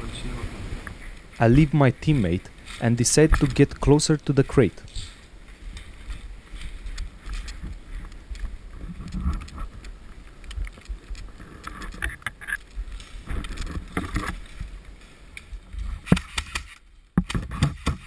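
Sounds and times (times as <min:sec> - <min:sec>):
twigs scraping against clothing: 0:00.9 - 0:18.0
footsteps crunching in snow: 0:01.0 - 0:11.5
wind rumble on microphone: 0:04.9 - 0:16.2.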